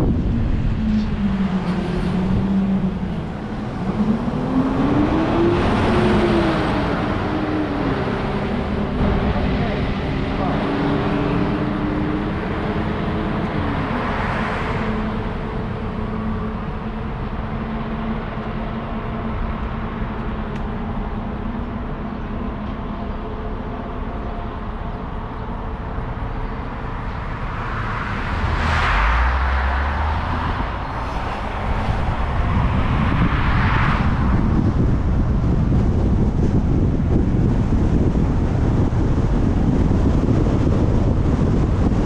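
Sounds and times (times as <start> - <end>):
deep rumble: 0.0 - 42.0
road and wind noise: 0.0 - 42.0
whooshes: 27.6 - 34.6.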